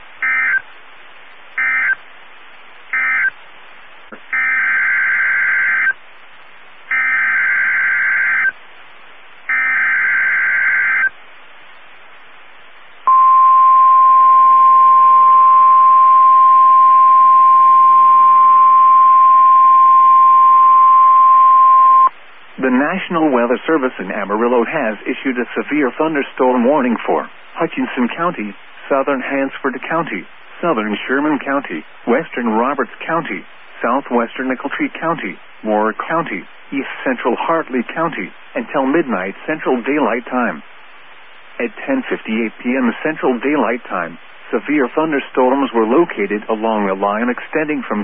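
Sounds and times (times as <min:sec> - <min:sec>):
short buzzing data bursts: 0:00.2 - 0:00.7, 0:01.6 - 0:02.0, 0:02.9 - 0:06.0, 0:06.9 - 0:08.6, 0:09.4 - 0:11.2.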